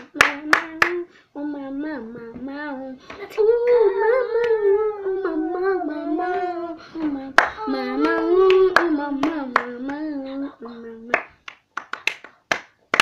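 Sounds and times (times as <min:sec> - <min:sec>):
hand claps: 0:00.0 - 0:01.0, 0:06.3 - 0:10.1, 0:11.1 - 0:13.0
child singing: 0:00.0 - 0:11.3.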